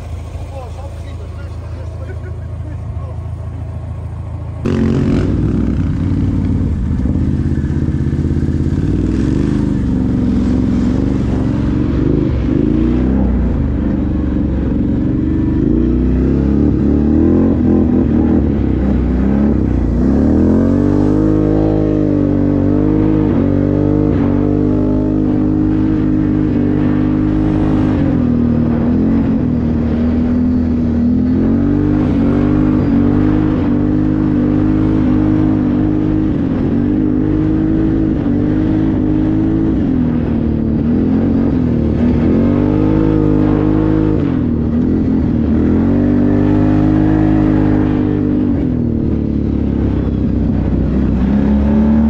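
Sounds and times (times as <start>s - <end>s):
atv engine running: 0.0s - 52.0s.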